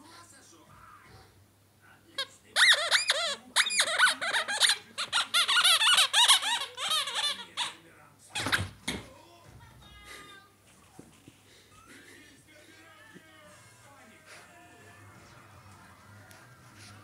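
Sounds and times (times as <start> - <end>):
rubber squeaky toy squeaking: 2.2 - 9.0.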